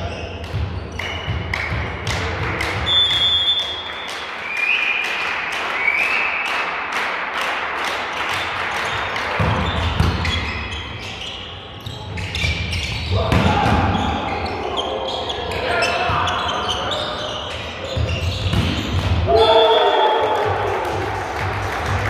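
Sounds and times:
crowd noise: 0.0 - 22.0
ball claps and knocks: 0.4 - 10.4, 20.2 - 22.0
shoe squeaks: 8.8 - 13.2, 13.9 - 19.0.

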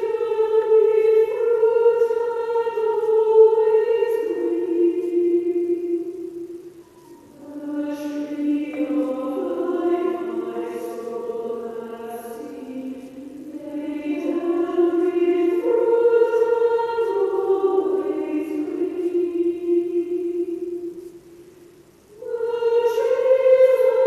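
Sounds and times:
choir singing held notes: 0.0 - 24.0.

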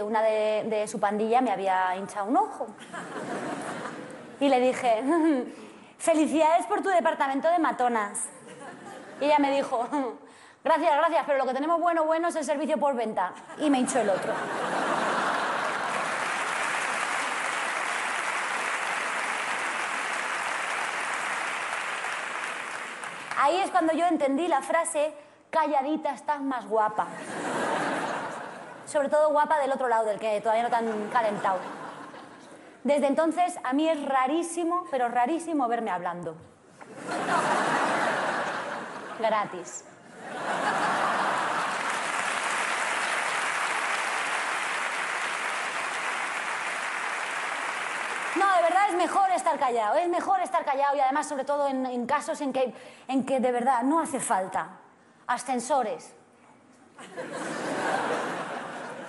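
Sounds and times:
audience applauding: 14.9 - 23.4, 40.6 - 49.0.

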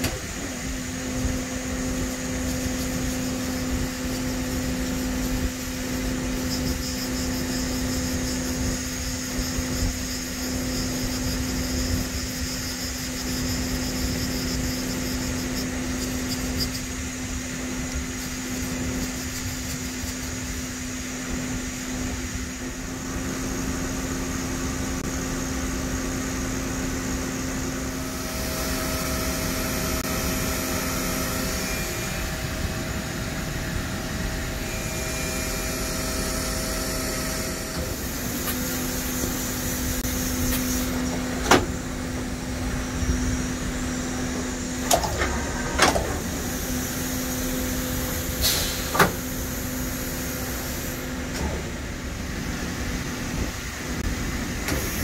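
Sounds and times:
machine hum: 0.0 - 48.4
low whine: 0.0 - 54.8
higher whine: 20.2 - 48.4.

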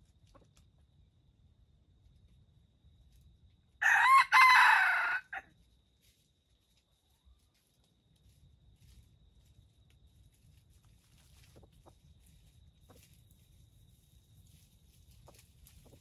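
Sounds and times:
dry leaves crackling: 3.8 - 16.0.

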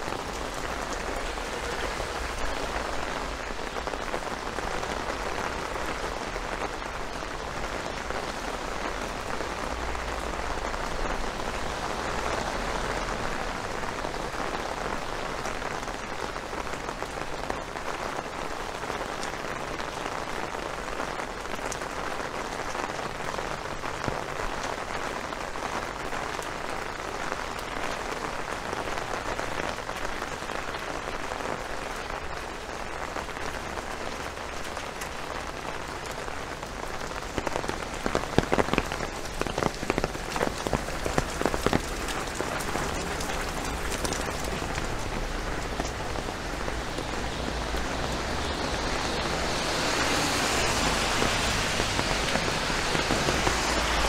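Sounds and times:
steady rain hiss: 0.0 - 54.0.

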